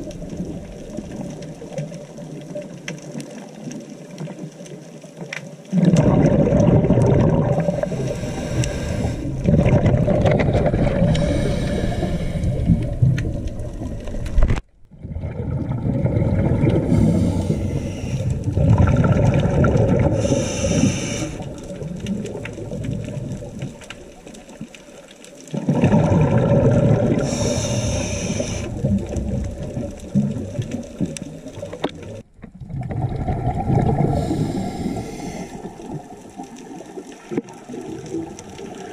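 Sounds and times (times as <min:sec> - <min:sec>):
exhaled air bubbling underwater: 0:00.0 - 0:38.9
underwater rumbling: 0:00.0 - 0:38.9
short hissing: 0:20.2 - 0:21.5, 0:27.3 - 0:28.8.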